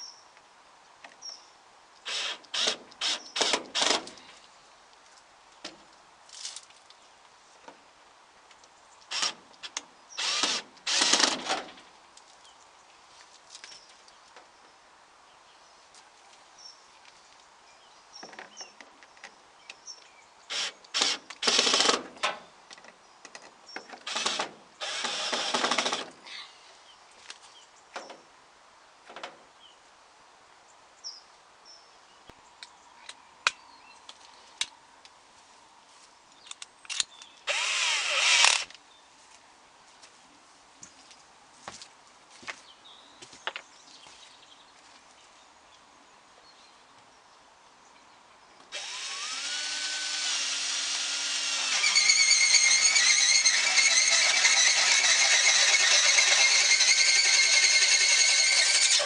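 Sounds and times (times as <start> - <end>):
cordless drill running: 10.2 - 11.3, 24.1 - 26.0, 37.5 - 38.6, 48.7 - 59.0.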